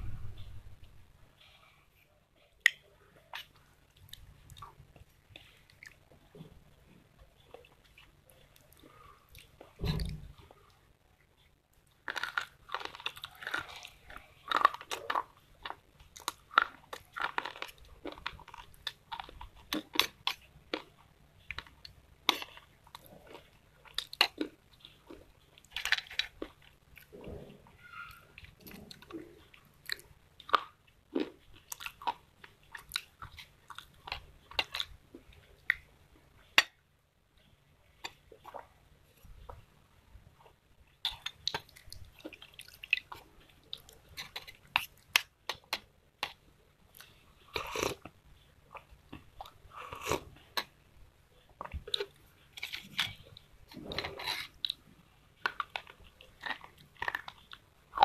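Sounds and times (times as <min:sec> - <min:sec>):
crunching of chewed pencil sticks: 0:11.8 - 0:27.2, 0:28.0 - 0:36.8, 0:41.0 - 0:48.1, 0:51.5 - 0:58.0.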